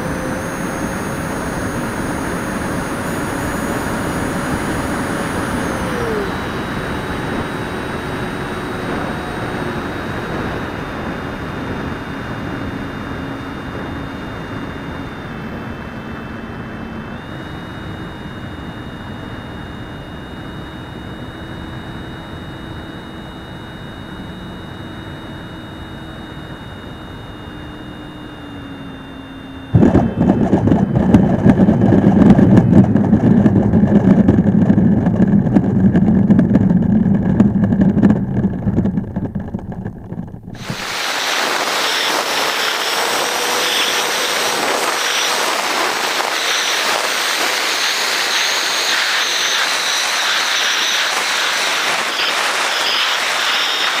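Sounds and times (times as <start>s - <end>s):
electric ducted fan whining: 0.0s - 54.0s
rushing hiss of model in flight: 40.6s - 54.0s.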